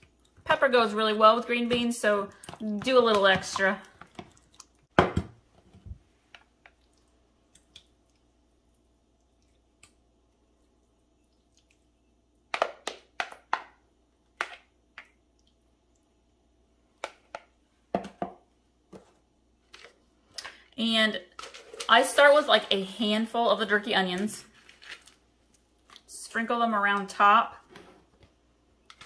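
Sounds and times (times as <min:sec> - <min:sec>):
dish knocking on countertop: 0:17.9 - 0:18.4.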